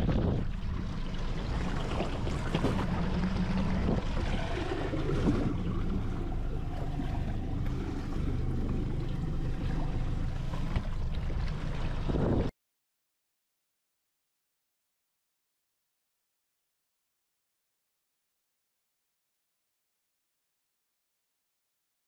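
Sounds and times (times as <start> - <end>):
wind buffeting microphone: 0.0 - 6.0, 11.7 - 12.5
water sloshing against boat hull: 0.0 - 12.5.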